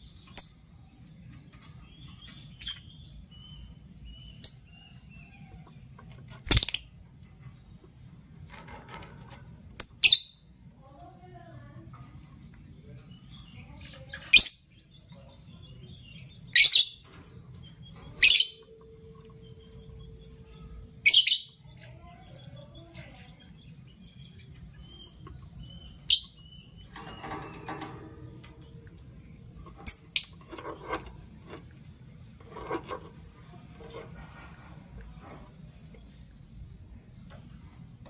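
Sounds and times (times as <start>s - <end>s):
lovebirds high-pitched calls: 0.0s - 1.0s, 1.6s - 7.0s, 9.8s - 10.6s, 13.1s - 28.1s, 28.7s - 30.8s
soft bird chattering: 13.1s - 28.8s.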